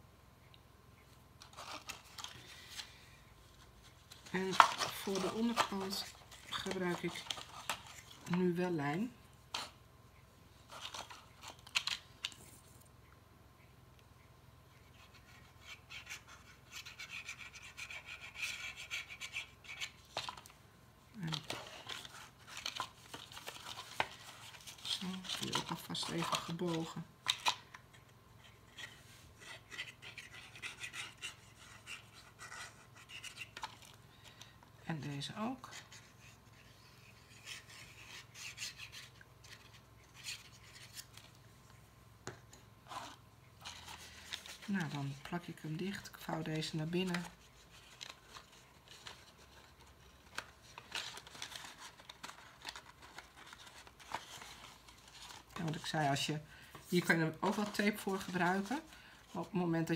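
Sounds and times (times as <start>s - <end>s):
card rustling: 1.4s - 9.8s, 10.6s - 12.9s, 14.8s - 20.6s, 21.2s - 59.9s
cardstock box rubbing and rustling: 3.9s - 8.2s.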